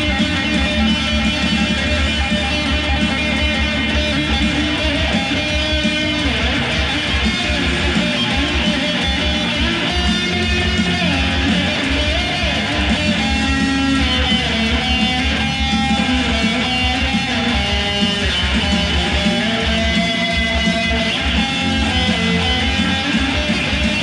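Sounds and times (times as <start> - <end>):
electric guitar melody: 0.0 - 24.0.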